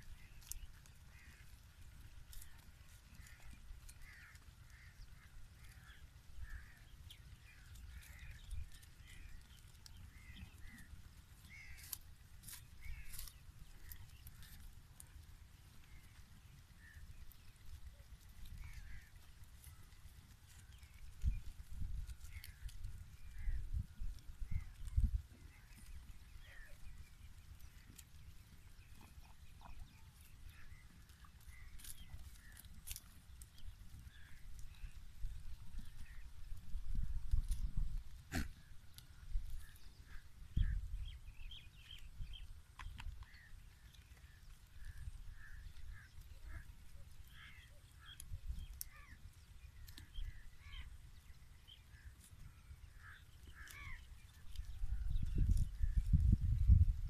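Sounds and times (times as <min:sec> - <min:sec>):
wind rumble on microphone: 0:15.8 - 0:57.0
steady low rumble: 0:21.8 - 0:27.0.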